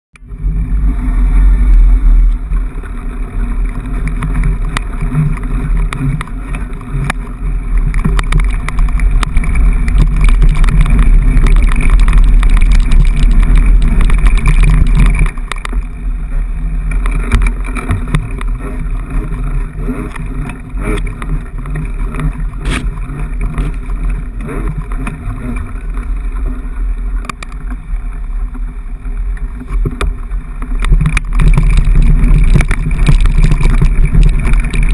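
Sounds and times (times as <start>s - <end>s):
wind and vibration rumble: 0.1s - 34.9s.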